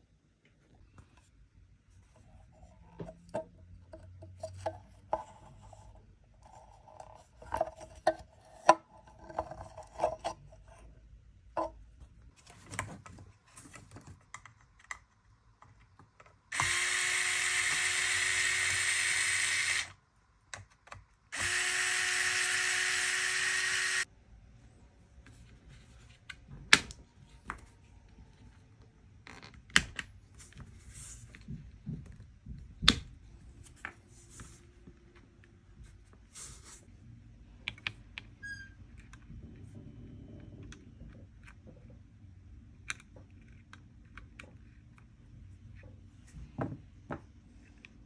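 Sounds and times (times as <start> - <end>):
small electric power tool running: 16.5 - 20.0, 21.3 - 24.1.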